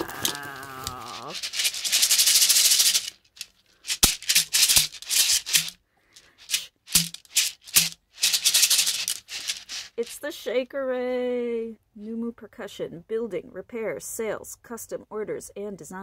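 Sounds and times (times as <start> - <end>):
shekere beads rattling: 0.0 - 10.3.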